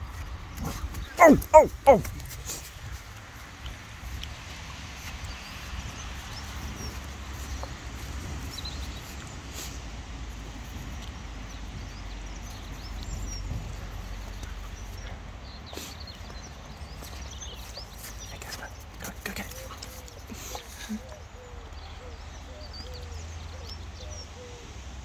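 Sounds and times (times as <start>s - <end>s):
dog sniffing in snow: 6.4s - 10.0s, 15.7s - 16.2s.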